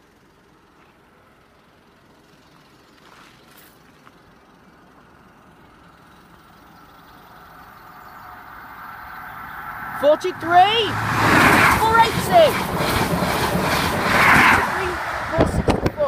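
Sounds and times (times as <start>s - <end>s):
train rumble and rail hiss: 3.7s - 16.0s.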